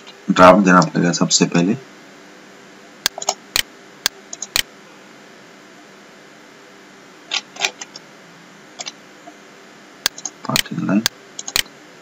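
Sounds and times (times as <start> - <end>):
steady low hiss: 0.0 - 12.0
mouse and keyboard clicks: 10.1 - 10.7, 11.4 - 11.7.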